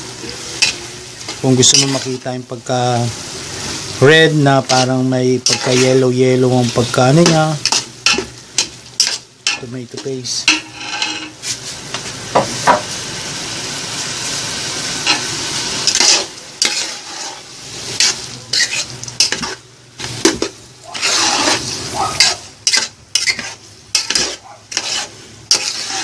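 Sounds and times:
meat sizzling in a pot: 0:00.0 - 0:26.0
metal spatula scraping a pot: 0:01.6 - 0:02.2, 0:04.6 - 0:11.4, 0:15.1 - 0:19.6, 0:20.2 - 0:26.0.

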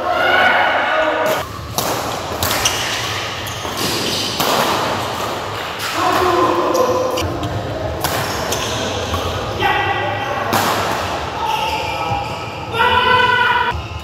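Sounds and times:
player shouting: 0:12.7 - 0:13.7.

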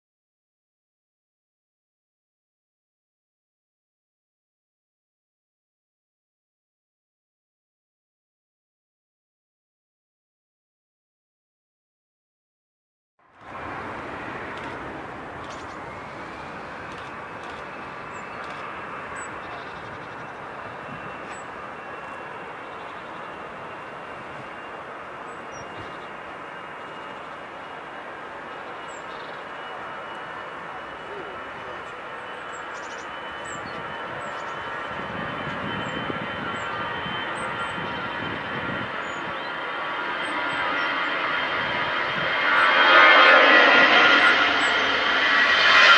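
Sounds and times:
faint high whine: 0:13.4 - 0:45.9
jet engines at takeoff thrust: 0:13.4 - 0:45.9.

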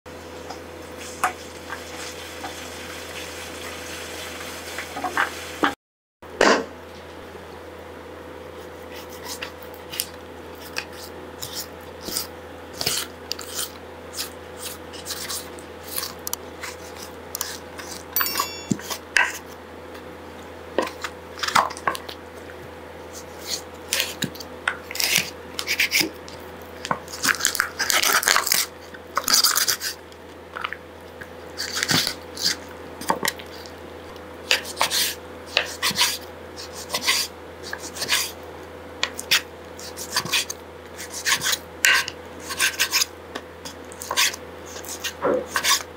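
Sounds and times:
knife crunching and slicing meat: 0:08.6 - 0:18.2, 0:23.1 - 0:30.0, 0:30.6 - 0:33.8, 0:39.0 - 0:45.9.

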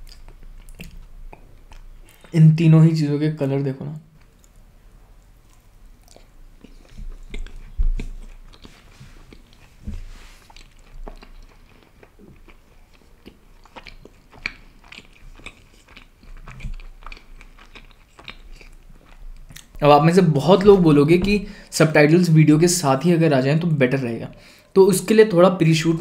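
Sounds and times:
wet chewing with mouth clicks: 0:00.0 - 0:02.4, 0:04.2 - 0:19.8
low thumps: 0:20.4 - 0:21.6.

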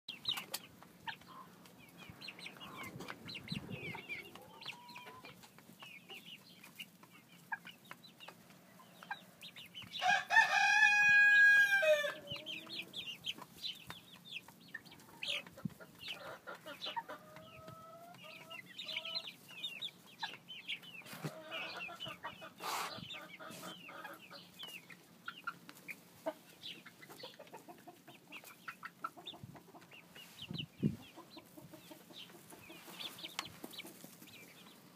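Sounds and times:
chickens peeping and clucking: 0:00.1 - 0:34.9
young rooster crowing: 0:10.0 - 0:12.5.

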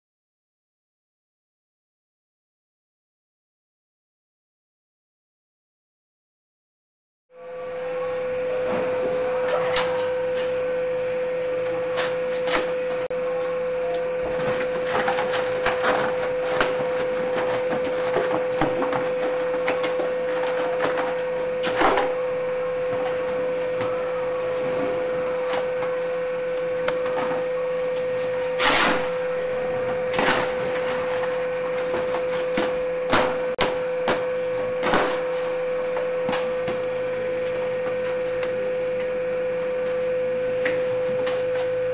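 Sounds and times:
steady hum with hiss: 0:07.4 - 0:41.9
cardboard boxes handled and dropped: 0:14.2 - 0:25.1, 0:28.7 - 0:36.8.

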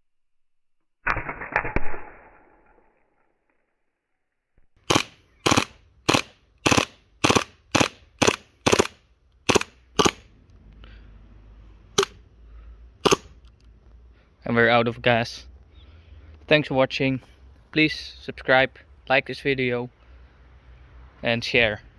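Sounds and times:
airsoft pistol shots: 0:01.0 - 0:02.6, 0:04.8 - 0:10.2, 0:13.0 - 0:13.3.

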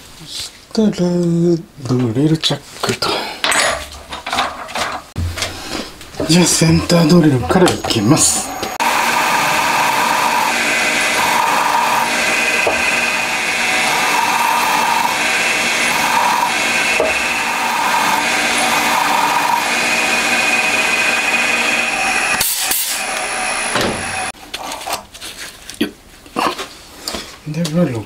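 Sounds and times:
milling machine spindle running: 0:06.2 - 0:24.4
air blow gun hissing: 0:08.1 - 0:24.4.

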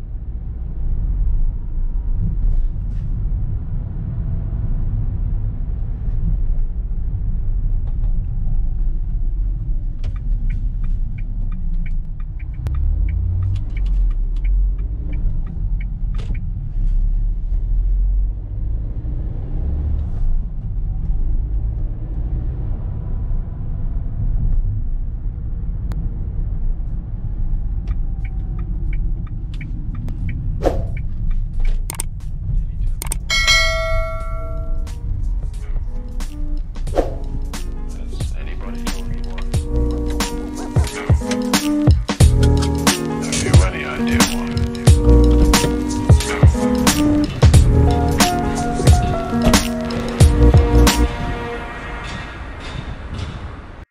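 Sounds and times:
engine and road noise rumble: 0:00.0 - 0:53.9
short clicks and ticks: 0:31.6 - 0:32.2, 0:33.0 - 0:33.3.

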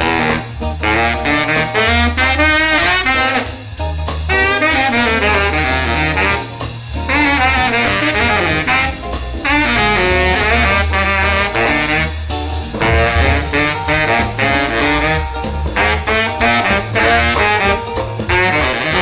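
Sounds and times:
baritone saxophone jazz line: 0:00.0 - 0:19.0
low bass notes: 0:07.2 - 0:18.4
drum hits: 0:11.8 - 0:16.1.

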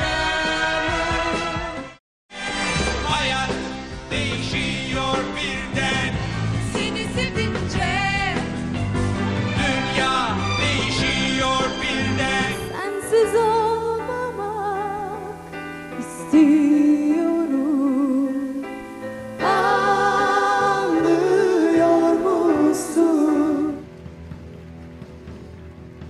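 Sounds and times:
band backing music: 0:00.0 - 0:26.0
woman singing pop song: 0:12.5 - 0:15.4, 0:16.0 - 0:18.8.

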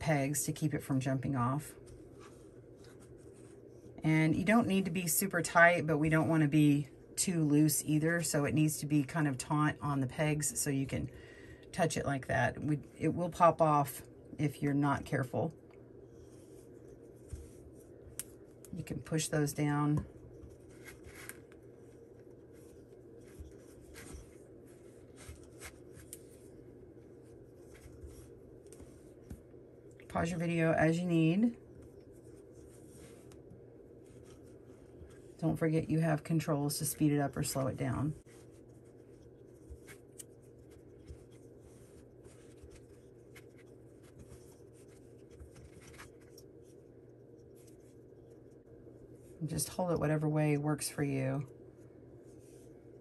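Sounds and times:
low room hum: 0:00.0 - 0:53.0
yarn rubbing over pegs: 0:15.9 - 0:49.4.

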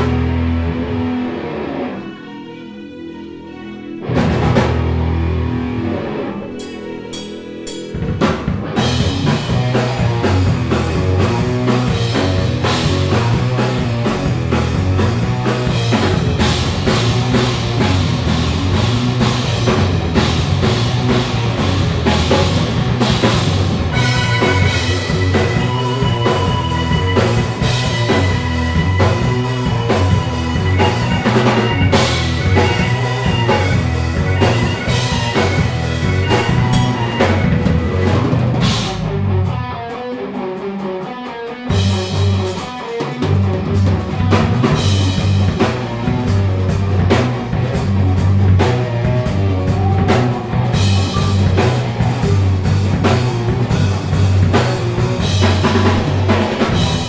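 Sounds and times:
instrumental rock band playing: 0:00.0 - 0:57.0
high held keyboard note: 0:23.9 - 0:38.2.

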